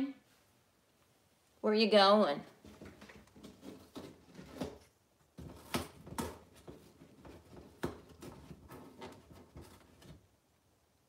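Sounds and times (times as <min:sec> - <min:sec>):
parrot tearing cardboard: 0:02.6 - 0:10.3.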